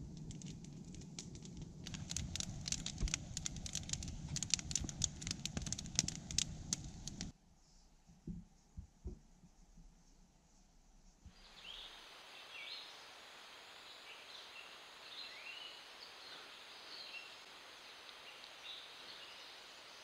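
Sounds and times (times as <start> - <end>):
low rumble of flame: 0.0 - 7.3
wood fire crackling: 0.0 - 7.3, 17.3 - 19.8.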